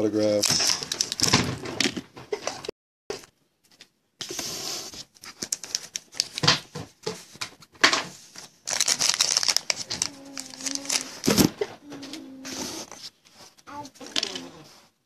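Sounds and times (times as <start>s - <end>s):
foil wrapper tearing and crumpling: 5.2s - 6.5s, 8.4s - 11.5s.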